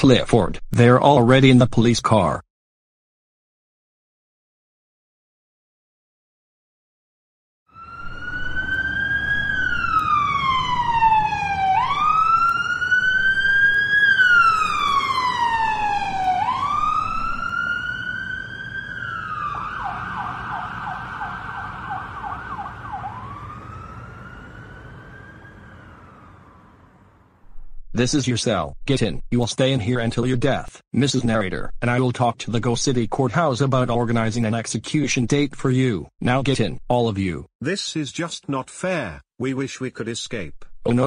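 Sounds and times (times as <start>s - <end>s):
police siren wailing and yelping: 7.7s - 27.4s.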